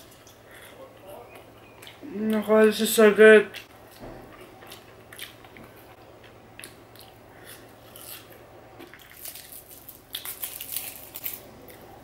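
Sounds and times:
chewing chips: 3.5 - 12.0
foil drink pouch crackling: 9.1 - 11.5.

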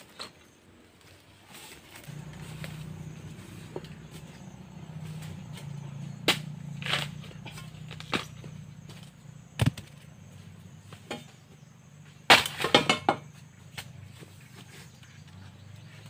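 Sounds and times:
metal bar striking bamboo: 12.3 - 13.2.

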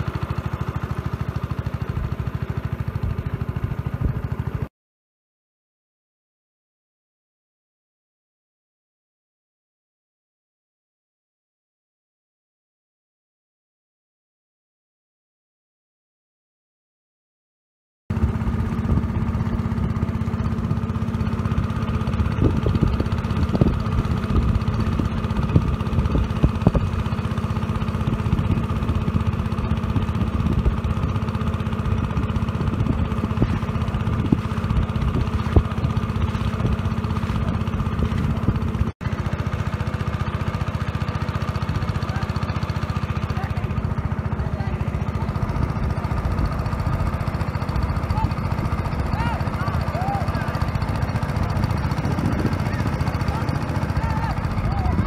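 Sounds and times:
engine running steadily: 0.0 - 4.7, 18.1 - 55.0.

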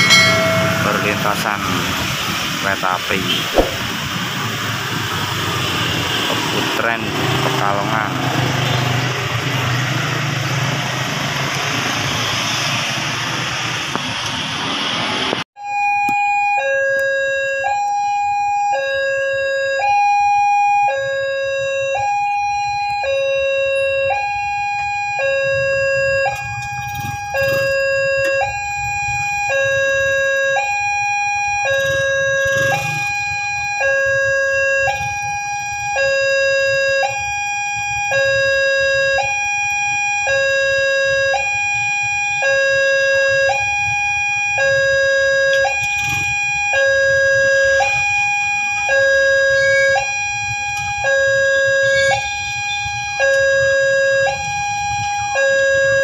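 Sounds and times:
level crossing two-tone alarm: 0.0 - 4.0, 15.6 - 56.0.

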